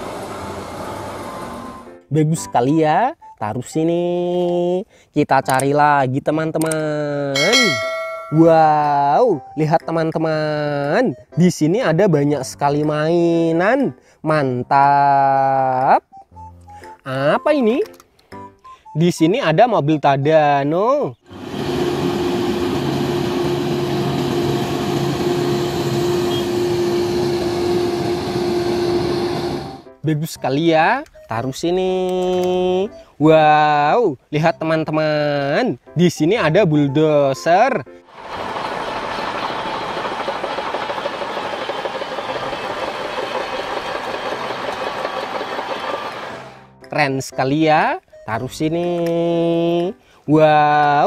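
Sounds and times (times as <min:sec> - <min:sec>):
crane diesel engine running: 0:21.3 - 0:29.9, 0:38.1 - 0:46.6
steel tracks clattering: 0:38.2 - 0:46.6.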